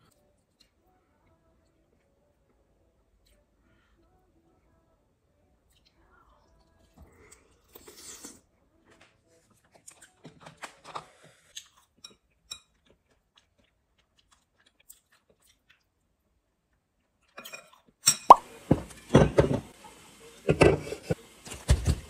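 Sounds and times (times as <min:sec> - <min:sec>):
chewing: 0:09.4 - 0:16.1.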